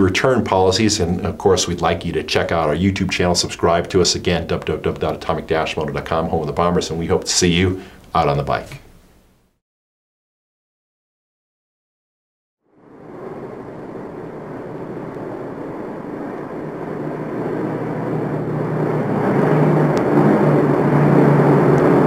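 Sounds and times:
vehicle engine droning: 12.7 - 22.0.

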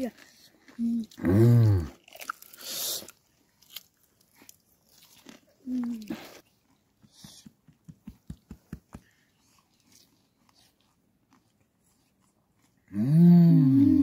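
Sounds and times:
crunchy chewing: 0.0 - 7.3, 9.0 - 14.0
person humming mmm: 0.8 - 1.9, 12.9 - 14.0.

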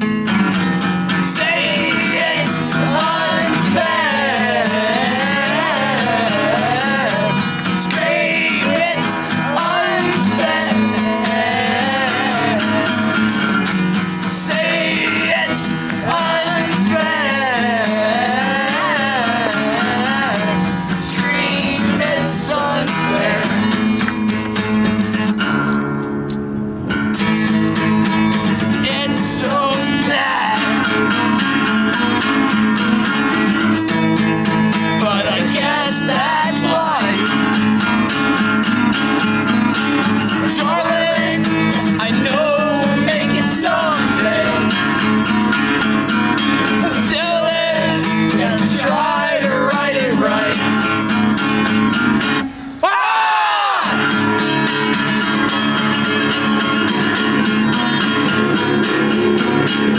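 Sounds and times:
acoustic guitar strumming: 0.0 - 52.9, 53.7 - 59.9
voices singing along: 1.1 - 24.4, 28.4 - 31.9, 34.7 - 38.2, 39.4 - 45.6, 46.3 - 51.3, 52.4 - 55.3.

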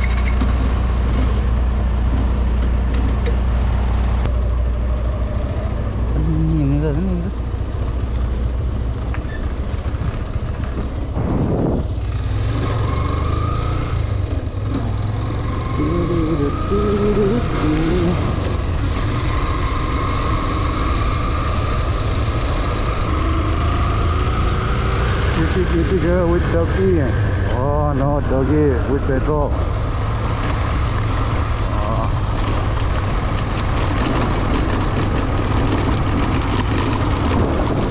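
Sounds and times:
motorcycle engine accelerating: 0.0 - 37.9
wind and road noise: 0.0 - 37.9.

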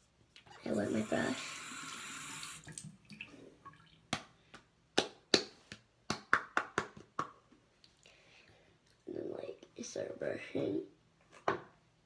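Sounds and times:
running tap: 0.7 - 3.2.

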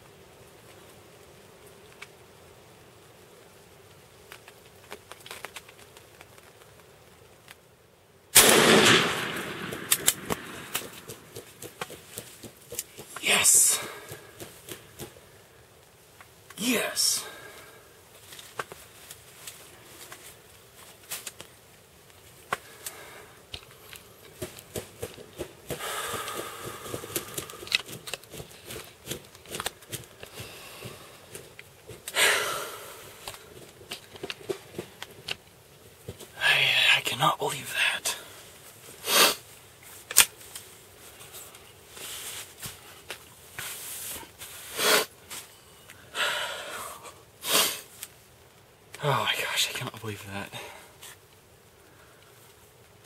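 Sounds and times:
light clicks and rustles: 3.9 - 7.7
loud shotgun blast: 8.4 - 11.0.

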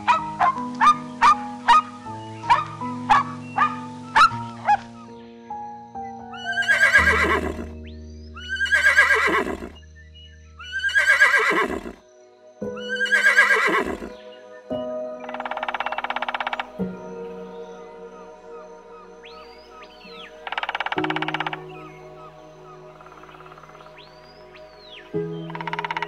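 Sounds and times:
animal calling: 0.0 - 5.0, 6.3 - 7.8, 8.4 - 9.8, 10.6 - 12.0, 12.8 - 14.2, 15.2 - 26.0
background music: 0.0 - 26.0.

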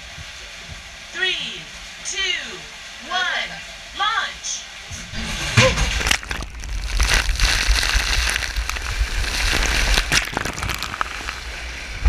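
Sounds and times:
rushing water: 0.0 - 12.0
rider sliding down water slide: 5.2 - 12.0
splashing spray: 5.9 - 12.0.

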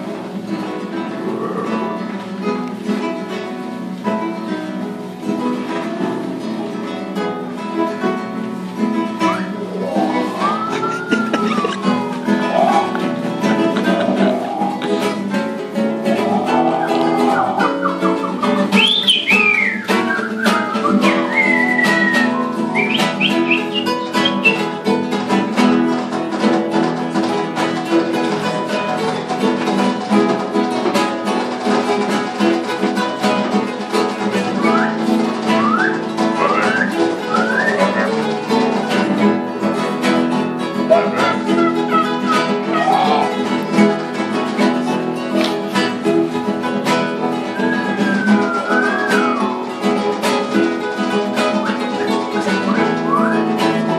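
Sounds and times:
acoustic guitars playing: 0.0 - 53.9
whistled bird-like calls: 9.8 - 13.0, 13.9 - 15.2, 16.1 - 24.8, 34.6 - 38.3, 40.9 - 43.4, 47.5 - 49.6, 52.7 - 53.5.

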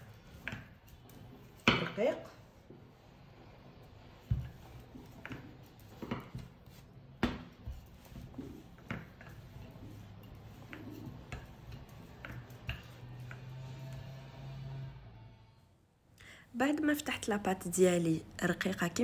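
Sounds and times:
rolling pin knocking on board: 7.2 - 9.4.

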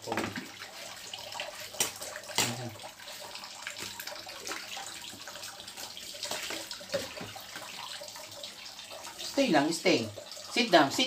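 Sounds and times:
water pouring and splashing in sink: 0.0 - 11.0
sharp splashes or knocks: 1.8 - 2.7.

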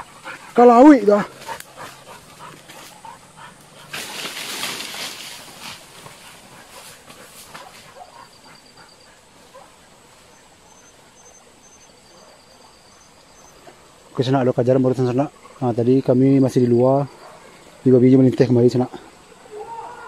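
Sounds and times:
dog rustling through undergrowth: 1.3 - 8.5.

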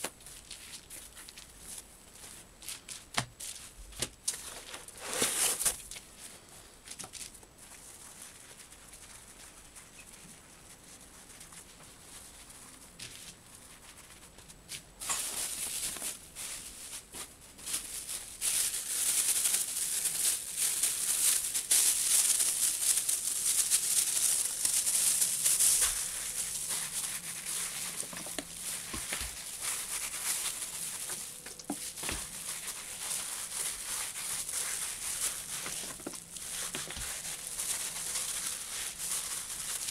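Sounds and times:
plastic bag rubbing on felt: 4.4 - 6.5, 7.2 - 14.5, 15.2 - 39.9.

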